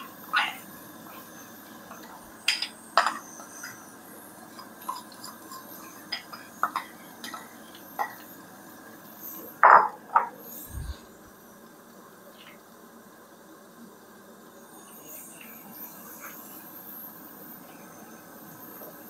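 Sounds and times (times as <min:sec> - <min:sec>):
metal spoon scraping a bowl: 0:04.6 - 0:08.3.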